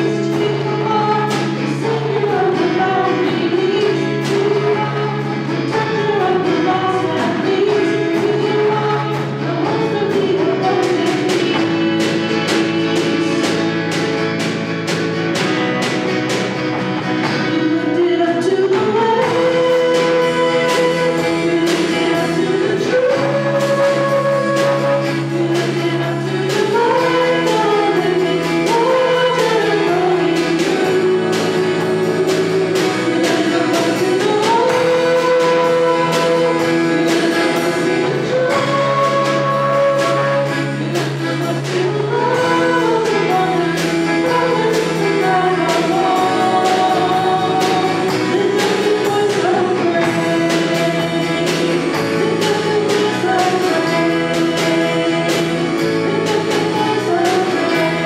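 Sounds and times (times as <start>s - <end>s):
acoustic guitar: 0.0s - 58.0s
drum kit steady beat: 0.0s - 58.0s
second guitar: 0.0s - 58.0s
voices singing together: 0.0s - 58.0s.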